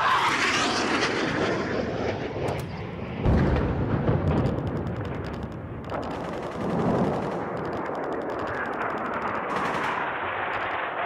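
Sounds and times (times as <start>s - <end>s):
automatic gunfire: 4.1s - 11.0s.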